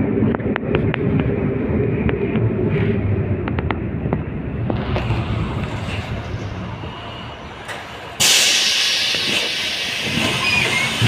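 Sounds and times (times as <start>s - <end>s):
tram running rumble: 0.0s - 11.0s
loud hiss of air: 8.2s - 11.0s.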